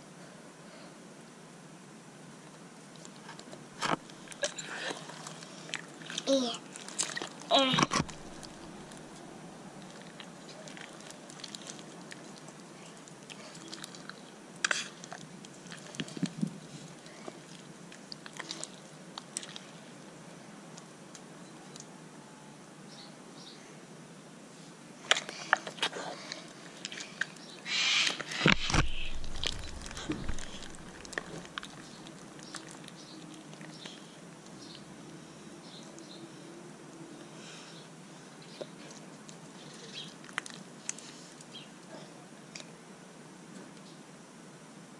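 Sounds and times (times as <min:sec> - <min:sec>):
slime squishing and squelching: 0:03.0 - 0:09.2, 0:09.8 - 0:19.8, 0:28.1 - 0:34.0.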